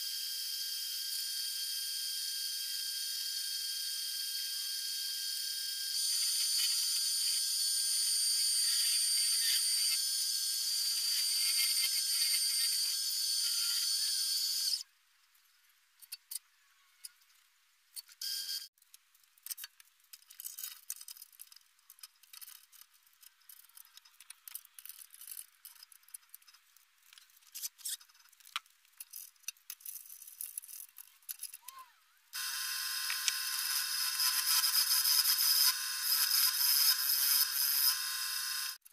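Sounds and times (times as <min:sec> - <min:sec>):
wood lathe hissing: 0:32.4 - 0:38.8.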